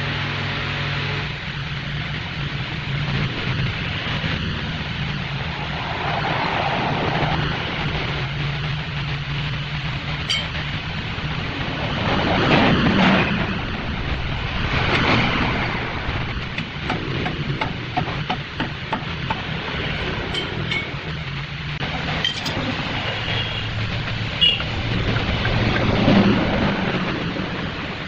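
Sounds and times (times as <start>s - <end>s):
metallic clinks: 10.3s - 10.6s, 20.0s - 21.2s, 22.2s - 22.8s.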